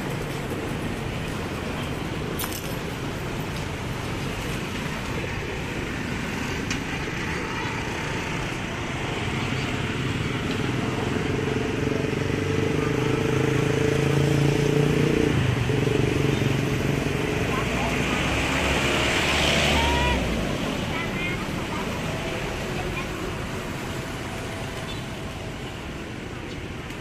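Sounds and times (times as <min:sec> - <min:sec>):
city traffic noise: 0:00.0 - 0:27.0.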